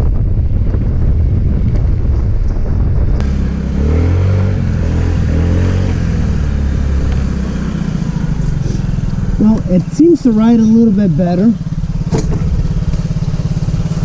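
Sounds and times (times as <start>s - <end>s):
wind on microphone: 0.0s - 14.0s
scooter engine: 3.2s - 14.0s.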